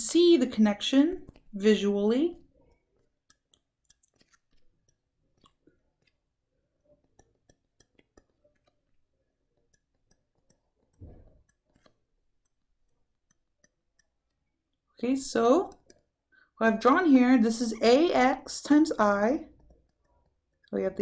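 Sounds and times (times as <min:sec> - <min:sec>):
stylus tapping on drawing tablet: 0:06.8 - 0:14.4.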